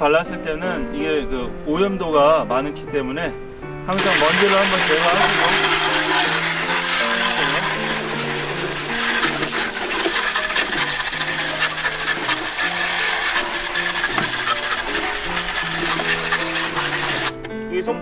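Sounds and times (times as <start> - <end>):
background music: 0.0 - 18.0
hose water spraying on plastic fan: 3.9 - 17.4.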